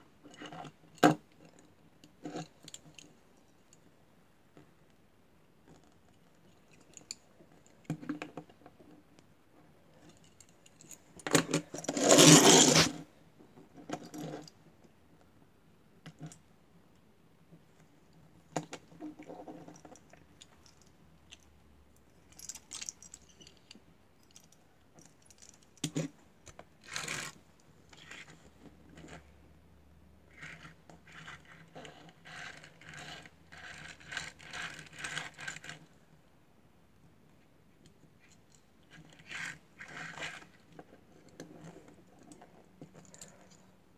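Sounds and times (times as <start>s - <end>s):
toy car pushed along table: 11.3s - 13.1s, 26.8s - 27.4s, 30.3s - 35.9s, 39.1s - 42.6s.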